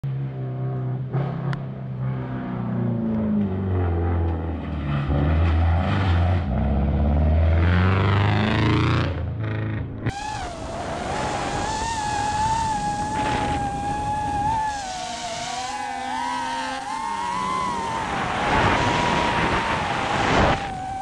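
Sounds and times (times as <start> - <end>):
rally car engine revving: 0.1 - 21.0
wavering high tone: 10.1 - 21.0.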